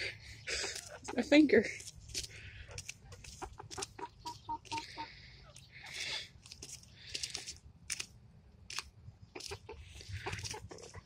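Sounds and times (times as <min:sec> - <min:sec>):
rustling of leaves: 0:00.0 - 0:05.0, 0:05.9 - 0:08.1
hens clucking: 0:00.0 - 0:07.6, 0:09.2 - 0:11.0
hens pecking cabbage: 0:00.0 - 0:11.0.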